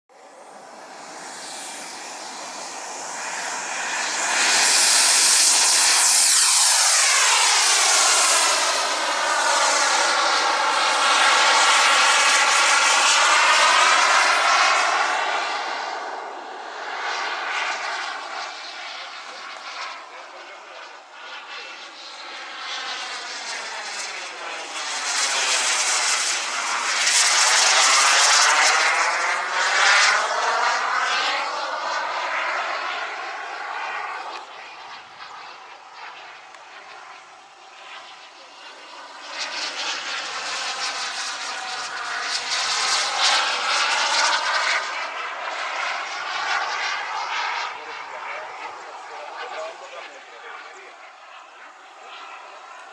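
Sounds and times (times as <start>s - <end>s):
model jet engine hiss: 0.6s - 16.2s, 20.9s - 36.2s, 36.8s - 48.3s.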